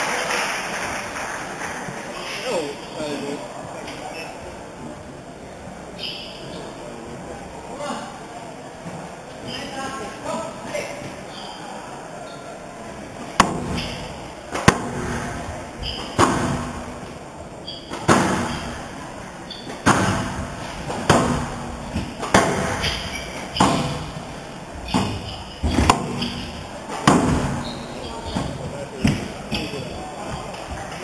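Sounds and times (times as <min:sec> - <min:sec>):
squash ball hitting rackets and walls: 0:13.2 - 0:31.0.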